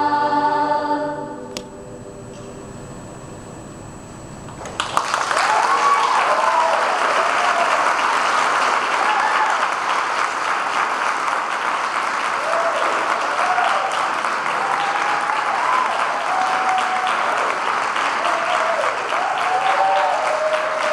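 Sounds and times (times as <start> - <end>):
audience applause: 4.6 - 20.9
voices cheering: 4.7 - 10.2, 12.2 - 20.9.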